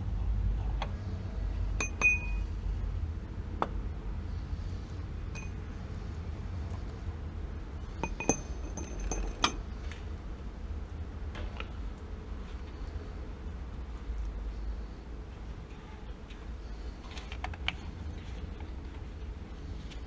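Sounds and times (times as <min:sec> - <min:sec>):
steady low rumble: 0:00.0 - 0:20.0
metal fittings clinking: 0:01.8 - 0:02.4, 0:08.0 - 0:09.6.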